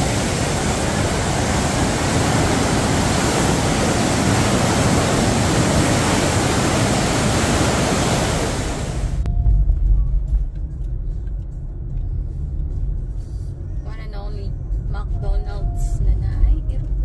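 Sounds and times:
white water rushing: 0:00.0 - 0:09.2.

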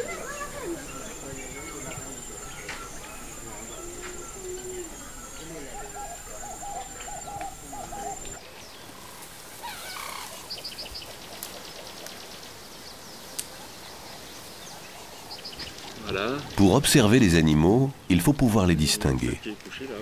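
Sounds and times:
dove cooing: 0:00.0 - 0:08.4
small birds chirping: 0:00.0 - 0:20.0.

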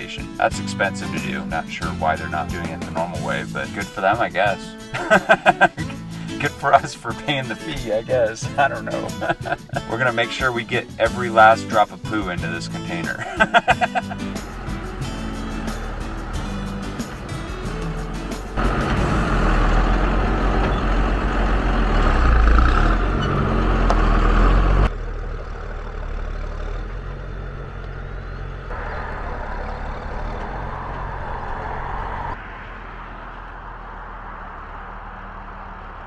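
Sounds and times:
truck engine rumbling: 0:00.0 - 0:36.0.

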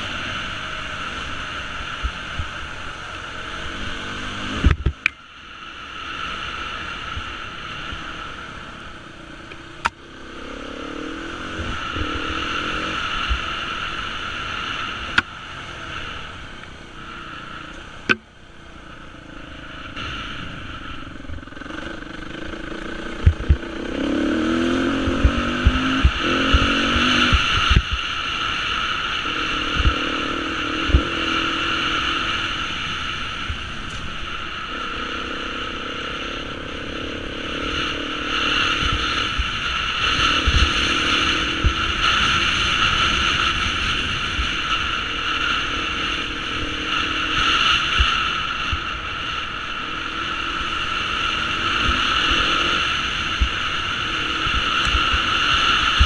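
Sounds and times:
dirt bike engine revving: 0:00.0 - 0:05.1, 0:06.2 - 0:18.2, 0:19.1 - 0:56.0.

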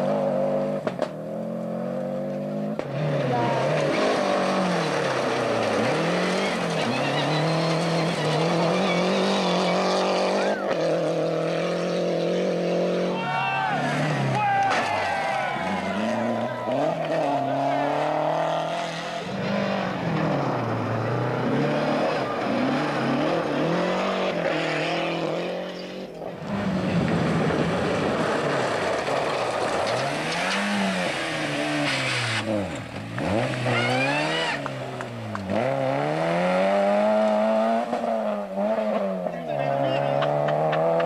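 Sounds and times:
rally car engines revving: 0:00.0 - 0:41.0
tyres on gravel: 0:03.1 - 0:09.2, 0:13.2 - 0:17.9, 0:26.2 - 0:36.1.

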